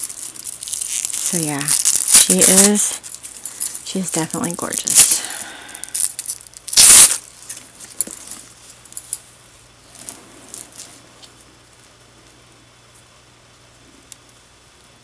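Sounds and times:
tissue paper rustling and crinkling: 0.0s - 5.3s.

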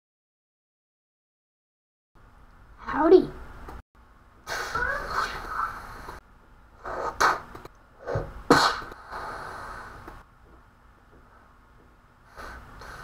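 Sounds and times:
sharp breathy bursts: 4.4s - 6.2s, 8.0s - 10.2s, 12.2s - 13.0s.

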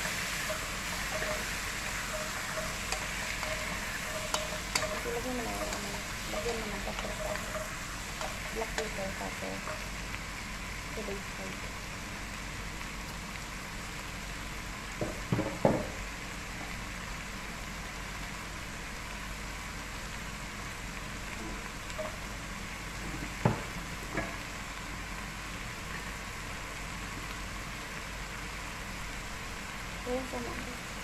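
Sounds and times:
food sizzling in a pot: 0.0s - 31.0s
wooden spatula knocking on pot: 0.5s - 9.8s.

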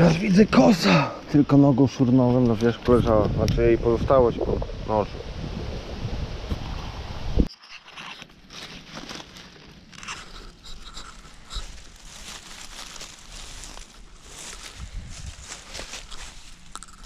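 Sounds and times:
wind buffeting microphone: 2.3s - 7.5s, 14.3s - 16.1s
dry leaves crunching underfoot: 7.9s - 17.0s.

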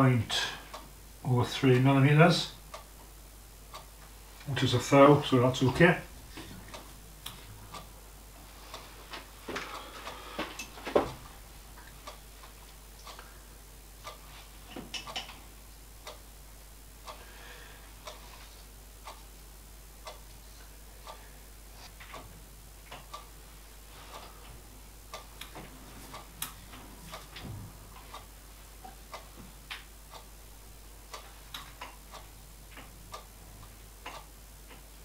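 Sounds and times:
faint steady hum: 0.0s - 35.0s
metallic clicks and taps: 14.9s - 15.4s.

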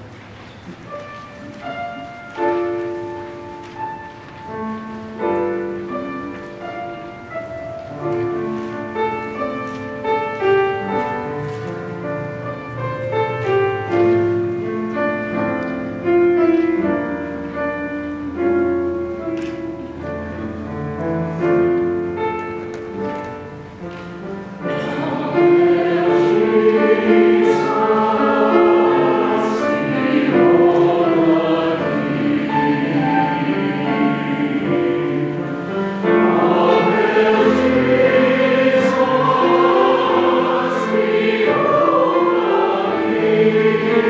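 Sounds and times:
piano: 0.0s - 44.0s
mixed choir singing: 24.6s - 44.0s.

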